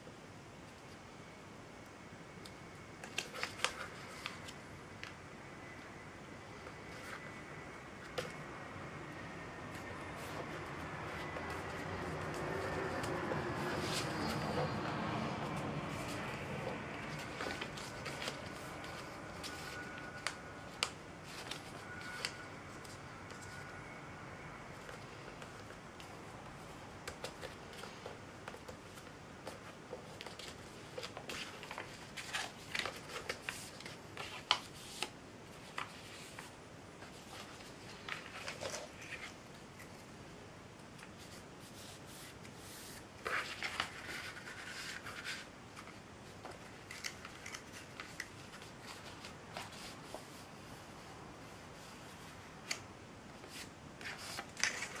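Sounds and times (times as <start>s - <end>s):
paper rustling and crinkling: 3.0s - 5.2s, 9.8s - 23.7s, 27.0s - 40.1s, 41.0s - 50.9s, 51.5s - 55.0s.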